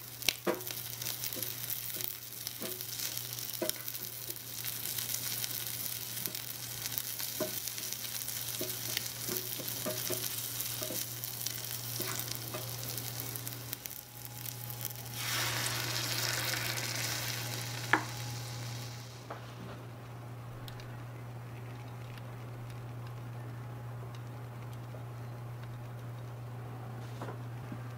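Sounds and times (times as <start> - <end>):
cream hissing in a hot pan: 0.0 - 19.3
shrimp sizzling in a frying pan: 0.0 - 19.3
wooden spatula tapping a pan: 3.6 - 3.8, 8.5 - 11.1.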